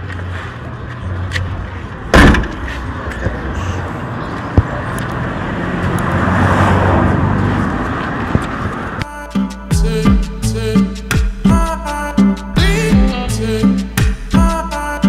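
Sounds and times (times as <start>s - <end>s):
car boot lid slamming: 2.1s - 2.6s.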